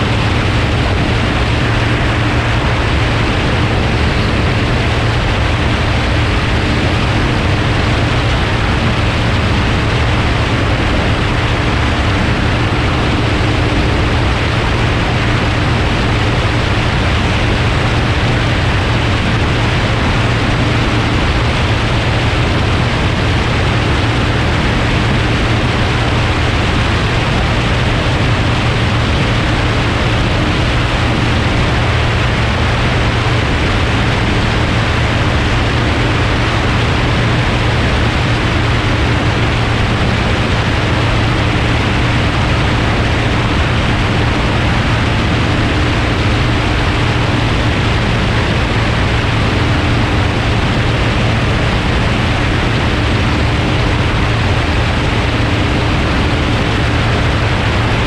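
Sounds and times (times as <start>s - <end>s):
propeller plane engine drone: 0.0s - 58.0s.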